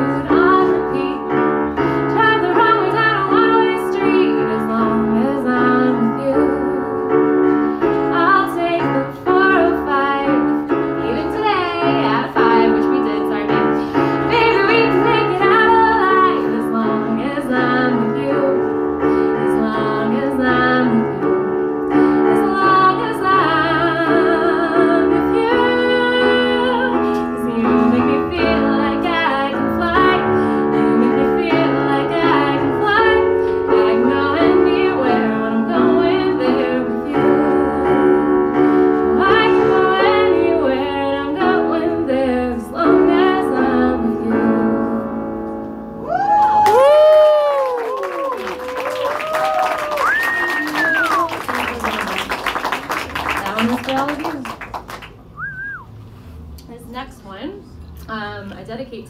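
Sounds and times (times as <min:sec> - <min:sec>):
woman singing pop song: 0:00.0 - 0:07.2, 0:08.0 - 0:21.4, 0:22.1 - 0:45.2
keyboard piano: 0:00.0 - 0:56.5.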